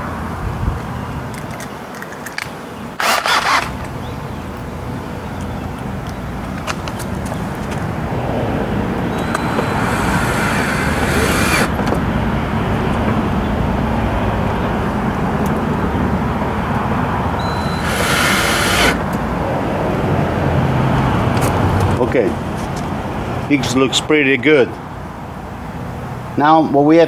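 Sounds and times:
power drill driving screws: 3.0s - 3.8s, 9.1s - 11.8s, 17.5s - 19.1s
steady rumble: 5.7s - 20.5s.

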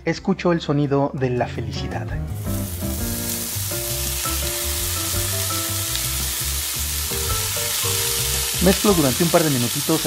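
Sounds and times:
bacon sizzling in a skillet: 2.3s - 10.0s.

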